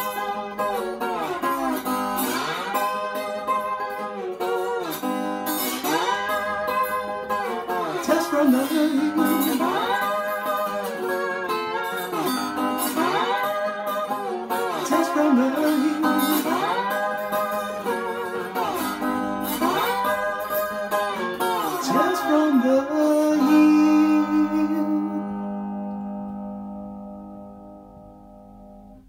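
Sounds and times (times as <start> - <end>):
resonator guitar: 0.0 - 29.0
person singing wordless phrases: 7.8 - 10.3, 14.7 - 16.8, 21.6 - 25.8.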